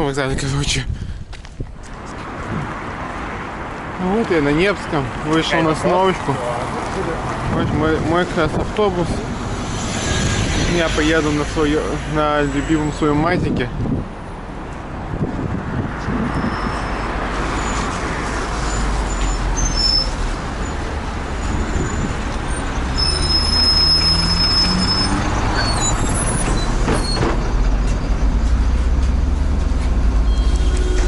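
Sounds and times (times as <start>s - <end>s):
short high whine: 9.3s - 12.6s
bus engine running: 17.3s - 31.0s.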